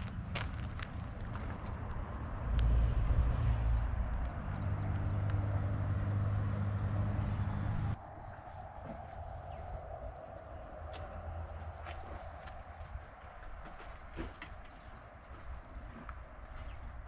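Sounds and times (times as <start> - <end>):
low engine hum: 0.0 - 13.0
insects buzzing: 0.0 - 17.0.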